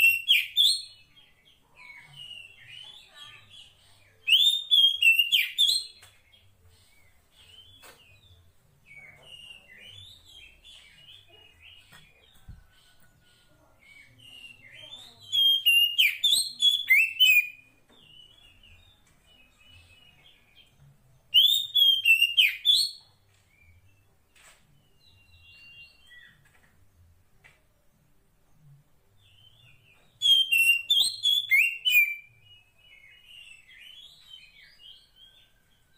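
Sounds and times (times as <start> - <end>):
bird chirps and whistles: 0.0 - 0.8, 4.3 - 5.9, 15.2 - 17.6, 21.3 - 23.0, 30.2 - 32.3
bird rapid varied chirping: 1.8 - 6.1, 9.3 - 18.8, 21.3 - 23.8, 29.3 - 35.9.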